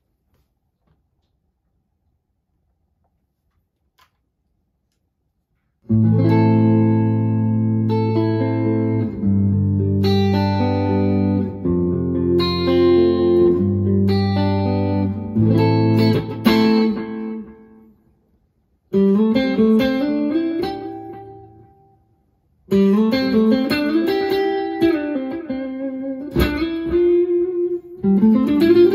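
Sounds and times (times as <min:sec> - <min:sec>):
clean electric guitar: 0:05.8 - 0:18.0, 0:18.9 - 0:28.9.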